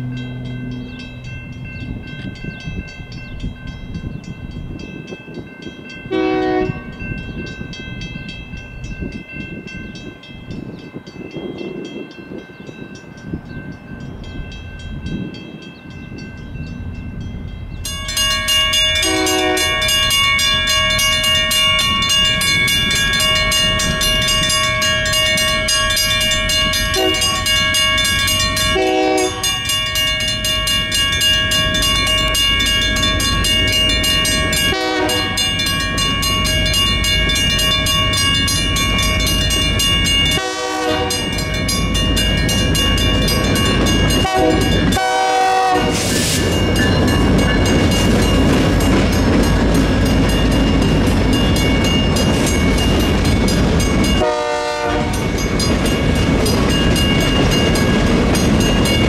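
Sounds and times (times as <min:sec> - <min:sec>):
crossing bells ringing rapidly: 0:00.0 - 0:59.0
distant locomotive horn: 0:06.1 - 0:07.0, 0:19.0 - 0:20.0, 0:26.9 - 0:27.5, 0:28.7 - 0:29.6, 0:34.6 - 0:35.6, 0:40.3 - 0:41.4, 0:44.2 - 0:46.2, 0:54.2 - 0:55.3.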